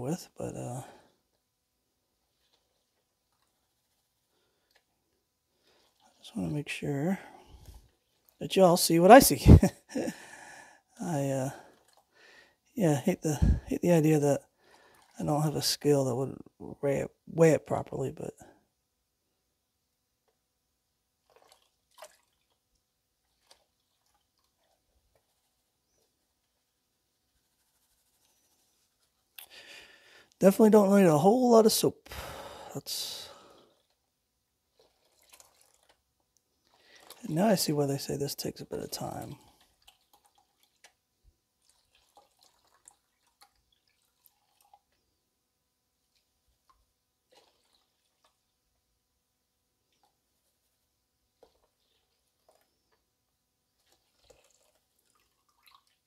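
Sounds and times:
water dripping and splashing: 2.3s - 6.8s, 11.6s - 12.2s, 14.6s - 15.2s, 21.2s - 25.5s, 34.7s - 45.1s, 46.0s - 48.6s, 51.4s - 53.0s, 53.7s - 56.0s.

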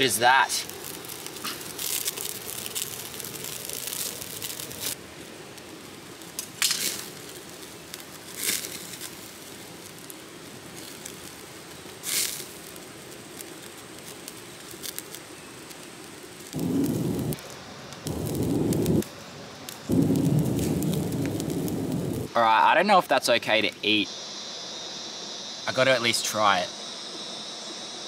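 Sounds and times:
fire pops: 0.0s - 22.3s
campfire crackling: 0.0s - 28.0s
steady hiss: 0.0s - 28.0s.

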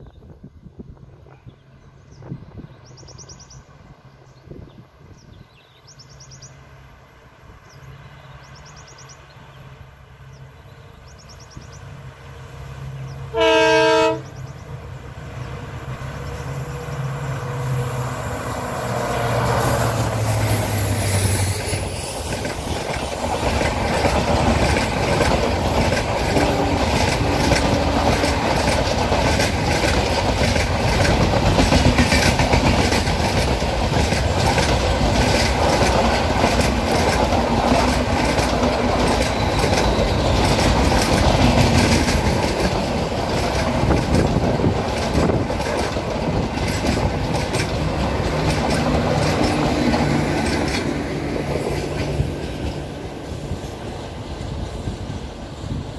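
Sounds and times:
low steady hum of rail car: 0.0s - 55.9s
train wheels clattering over rail joints: 20.0s - 55.9s.

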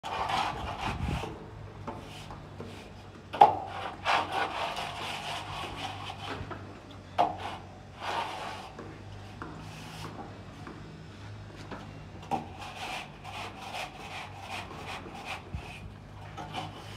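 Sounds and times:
metal strip scraping on wall: 0.0s - 6.4s, 7.2s - 8.8s, 12.2s - 16.9s.

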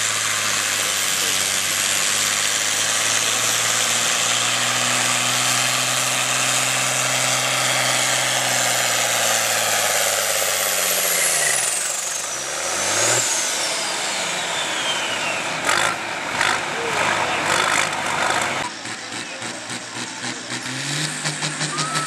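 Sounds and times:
tractor diesel engine under load: 0.0s - 22.0s
turbo whistle: 21.6s - 22.0s.

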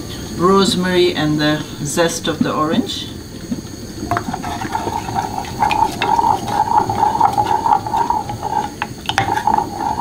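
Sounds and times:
liquid swishing: 3.8s - 10.0s
spoon scraping metal saucepan: 4.1s - 10.0s.

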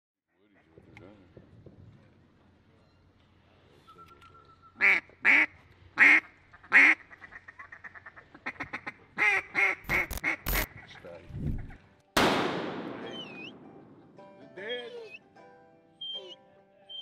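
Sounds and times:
duck quacking: 4.8s - 11.7s
sharp clicks: 9.8s - 10.7s.

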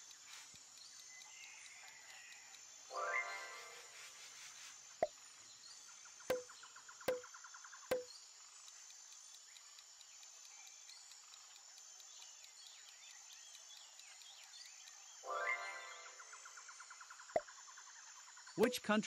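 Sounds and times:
faint quick ticking: 0.0s - 5.4s, 6.3s - 15.2s
high-pitched insect-like chirring: 0.0s - 19.0s.

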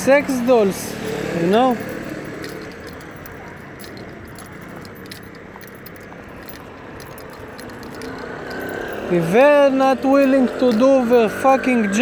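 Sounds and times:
steady background noise: 0.0s - 12.0s
faint small clicks and rattles: 1.1s - 9.3s.

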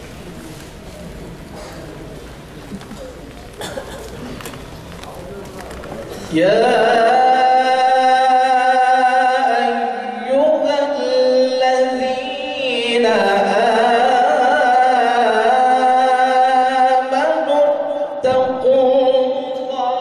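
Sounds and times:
man chanting into a microphone: 6.2s - 20.0s.

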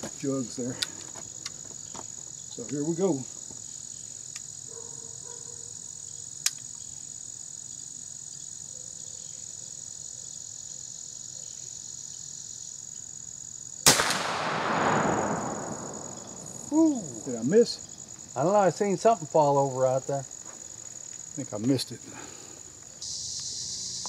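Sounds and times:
crickets chirping: 0.0s - 24.0s
rifle shot with rolling echo: 13.8s - 16.7s.

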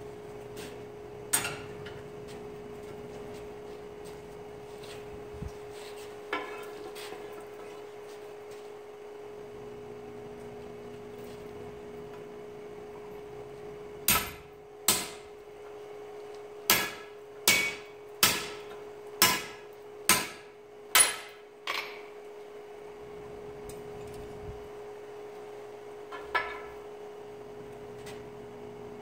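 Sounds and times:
hammer striking steel on anvil: 14.1s - 15.2s, 16.7s - 22.1s.

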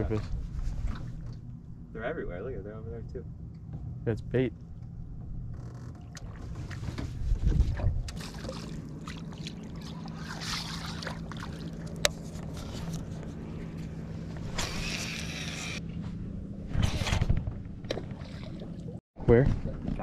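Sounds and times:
wind buffeting microphone: 6.2s - 8.2s
electric trolling motor humming: 8.1s - 16.5s.

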